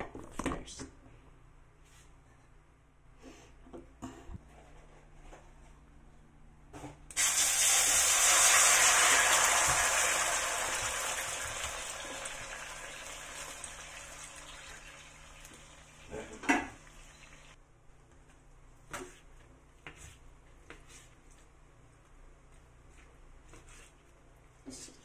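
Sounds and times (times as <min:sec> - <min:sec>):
coconut milk sizzling in hot wok: 0:07.2 - 0:17.6.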